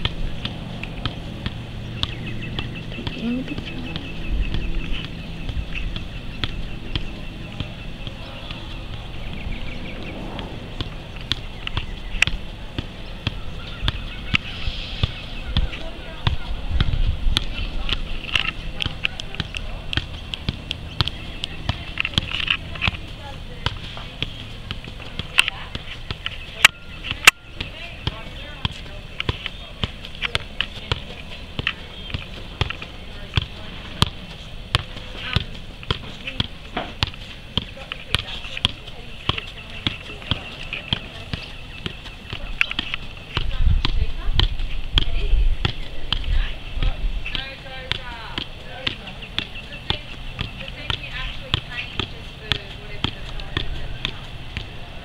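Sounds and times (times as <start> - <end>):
boot kicking soccer ball: 0.0 - 54.9.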